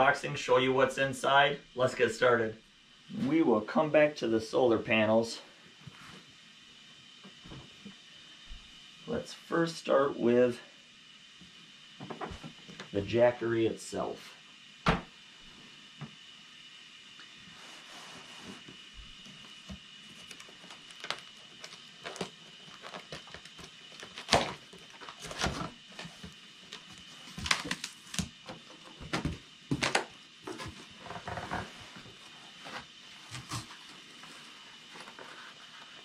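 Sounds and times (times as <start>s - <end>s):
cardboard box being unpacked: 20.1s - 28.3s.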